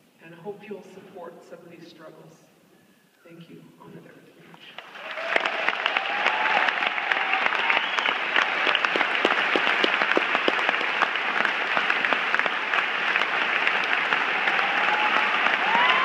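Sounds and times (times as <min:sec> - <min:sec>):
audience applauding: 0:04.8 - 0:16.0.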